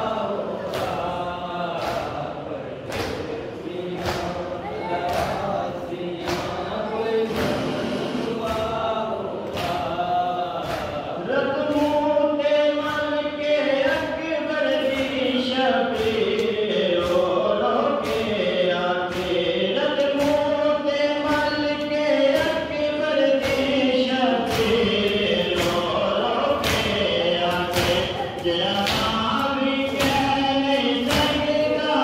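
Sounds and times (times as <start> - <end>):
group chanting a lament: 0.0 - 32.0.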